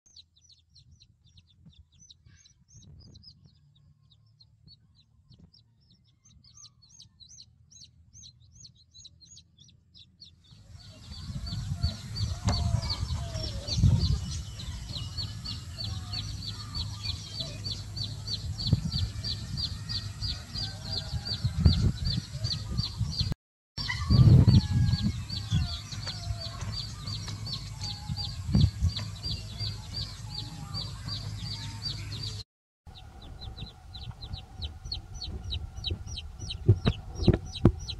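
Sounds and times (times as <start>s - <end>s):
chickens clucking: 10.9s - 24.6s, 32.9s - 37.9s.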